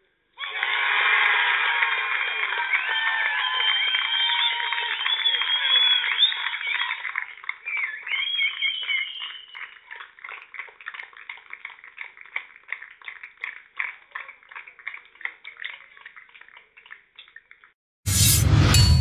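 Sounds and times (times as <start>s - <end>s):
people clapping: 0.4s - 17.8s.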